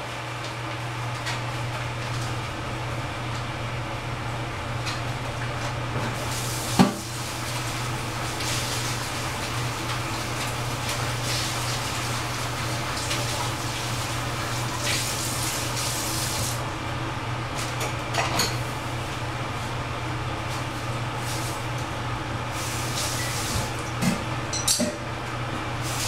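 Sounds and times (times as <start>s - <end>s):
tap water running: 5.4s - 16.7s, 21.1s - 26.0s
dishes clinking: 18.1s - 18.6s, 24.0s - 25.1s.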